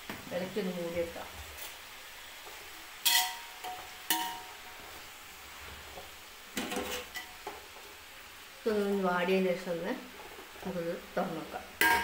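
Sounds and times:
vegetables stirred in pot clattering: 1.3s - 8.0s, 11.8s - 12.0s
spoon knocking on metal pot: 11.8s - 12.0s.

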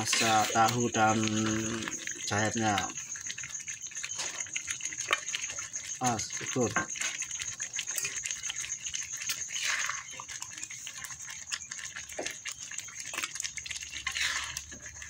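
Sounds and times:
sauce bubbling in a wok: 0.0s - 15.0s.

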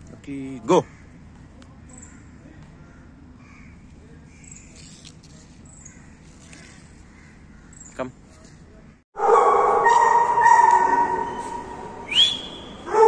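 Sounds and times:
outdoor background noise: 0.0s - 13.0s
crow-like caws: 0.8s - 1.2s, 2.1s - 3.8s, 5.8s - 7.8s.

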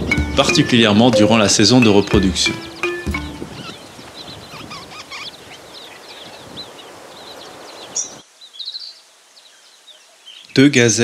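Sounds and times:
small birds chirping: 0.0s - 11.0s
outdoor hiss: 3.8s - 11.0s.

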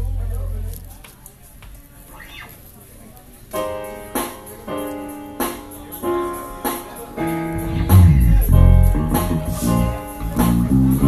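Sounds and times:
loud low bass line: 0.0s - 0.8s, 7.5s - 11.0s
keyboard chords: 3.6s - 11.0s.

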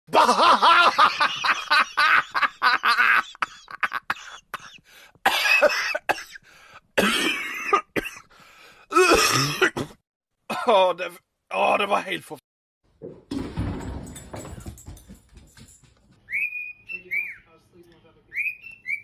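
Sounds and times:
person laughing hard: 0.1s - 4.8s.

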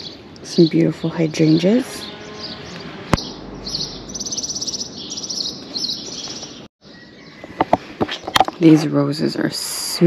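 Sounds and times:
songbird trilling: 0.0s - 7.6s.

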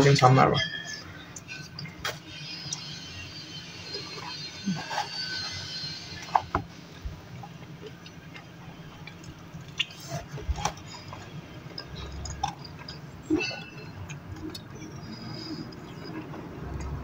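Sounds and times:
person chewing fries: 4.0s - 17.0s
wet mouth clicks and smacks: 7.8s - 13.0s.

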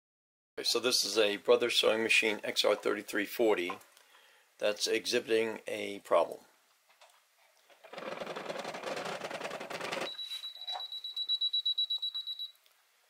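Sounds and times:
sewing machine clatter: 7.7s - 10.1s
high rapid beeping alarm: 10.1s - 12.5s.

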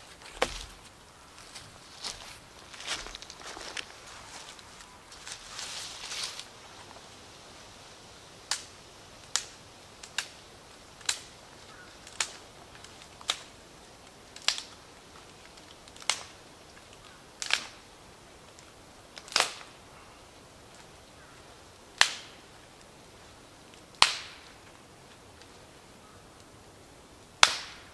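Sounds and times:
dry twigs snapping: 0.0s - 6.5s, 8.5s - 19.8s, 22.0s - 23.0s, 23.7s - 25.7s, 27.4s - 27.9s.

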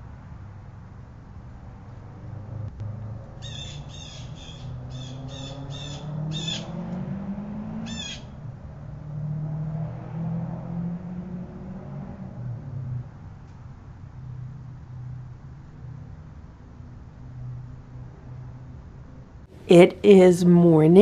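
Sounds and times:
bird calling: 3.4s - 6.7s.

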